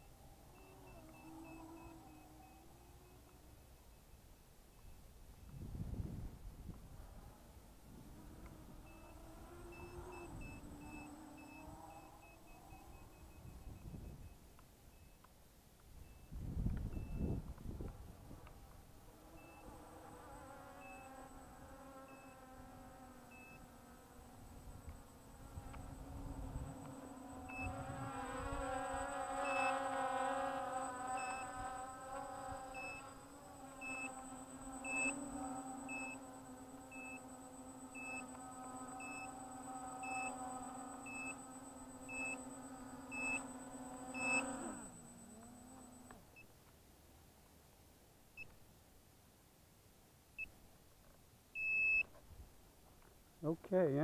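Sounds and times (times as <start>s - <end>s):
electrical motor buzz: 0.0s - 3.4s, 7.0s - 14.2s, 16.2s - 46.4s
short high beeps: 16.0s - 17.4s, 19.4s - 19.7s, 25.7s - 31.8s, 32.8s - 46.5s, 51.6s - 52.1s.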